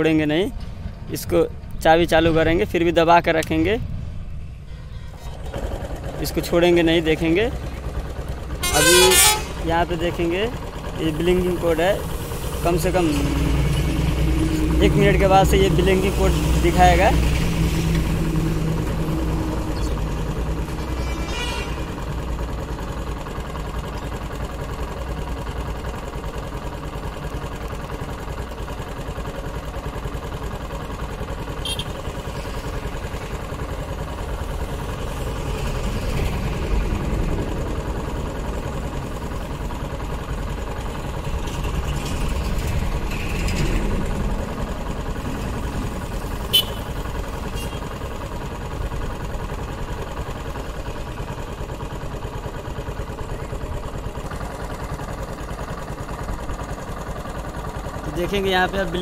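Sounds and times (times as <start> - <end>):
moped engine idling: 0.0 - 59.0.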